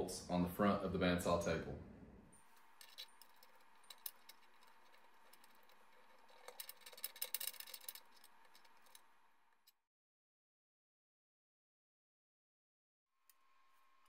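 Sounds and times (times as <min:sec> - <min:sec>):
small metallic clicks and rattling: 0:02.5 - 0:09.7.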